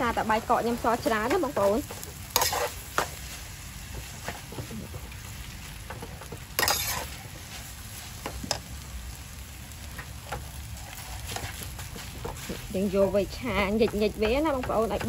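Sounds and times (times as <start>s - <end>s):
rice sizzling: 0.0s - 15.0s
metal spoon scraping pan: 1.8s - 3.2s, 6.3s - 7.2s.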